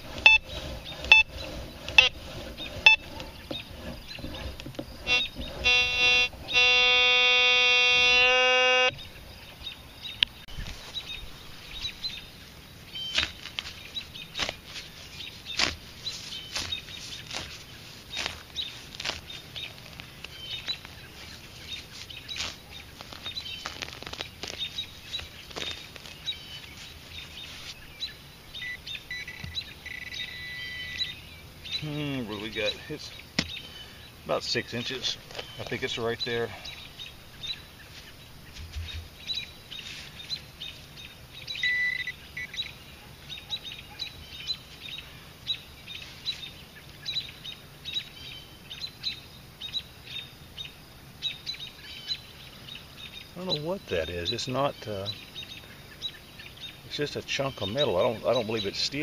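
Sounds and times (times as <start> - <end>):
metal detector beeping: 0.1 - 3.6, 5.0 - 9.0, 28.6 - 31.2, 41.6 - 42.7
hand digger chopping into soil: 13.1 - 13.8, 15.5 - 19.3.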